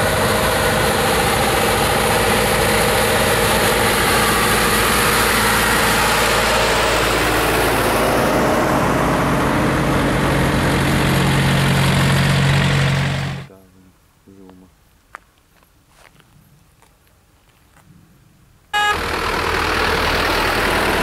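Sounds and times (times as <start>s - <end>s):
tractor engines running: 0.0s - 13.5s, 18.8s - 21.0s.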